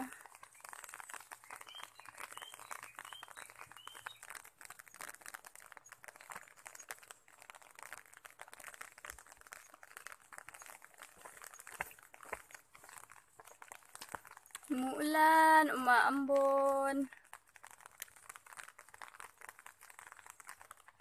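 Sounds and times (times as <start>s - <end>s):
rain pattering on umbrella: 0.0s - 21.0s
bird chirping: 1.5s - 4.3s.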